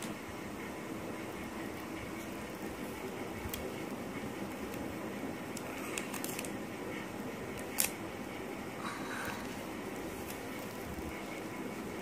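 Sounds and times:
stiff paper crinkling and clicking: 0:02.4 - 0:04.9, 0:05.5 - 0:06.6, 0:07.5 - 0:08.0, 0:09.2 - 0:12.0.

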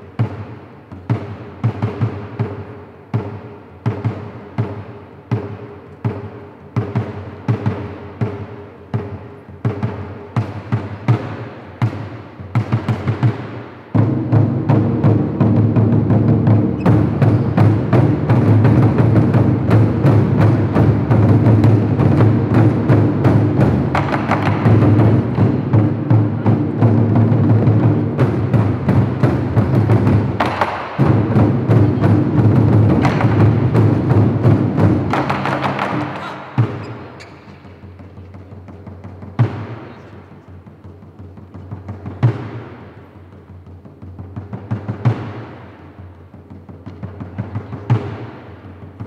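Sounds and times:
taiko drums playing: 0:00.0 - 0:49.0.

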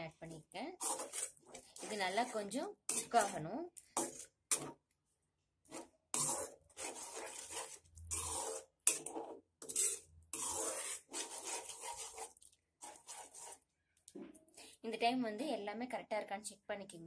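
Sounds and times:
spatula scraping metal pan: 0:00.8 - 0:04.8, 0:05.7 - 0:13.7.

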